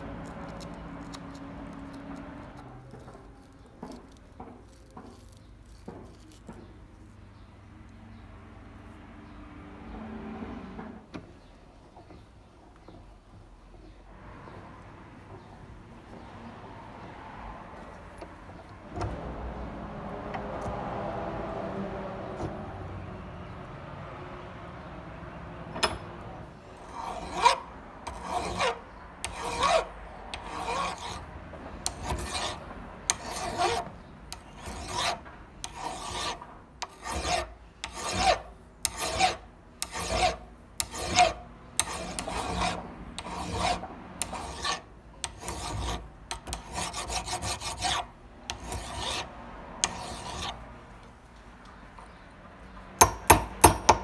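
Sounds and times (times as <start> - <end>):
hand file rasping on metal: 0.0 - 6.8, 26.8 - 50.6
hammer tapping metal punch: 25.8 - 26.2, 53.0 - 54.0.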